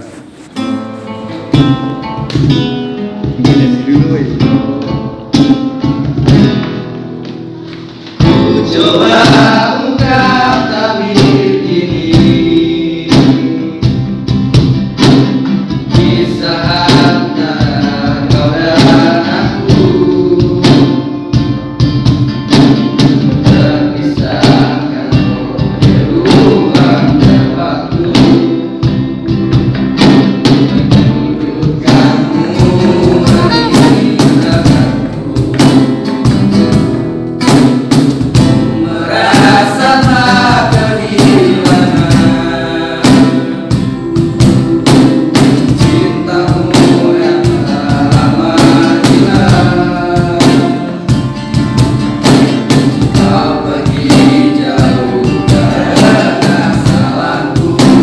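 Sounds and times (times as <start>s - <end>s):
cajon beat: 0.0s - 58.0s
nylon-string guitar: 0.0s - 58.0s
young male voices singing: 3.2s - 4.8s, 8.2s - 14.2s, 15.8s - 21.2s, 23.0s - 29.4s, 30.7s - 36.9s, 38.4s - 58.0s.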